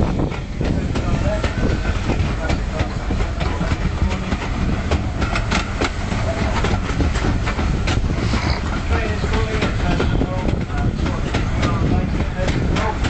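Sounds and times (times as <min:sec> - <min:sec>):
train carriage rumbling: 0:00.0 - 0:13.0
wheels clicking on rails: 0:00.0 - 0:13.0.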